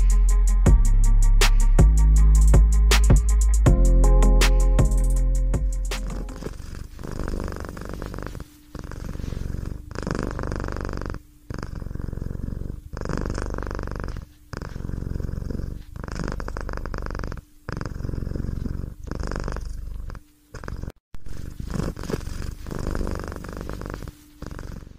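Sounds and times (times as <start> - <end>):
cat purring: 6.0 - 24.9.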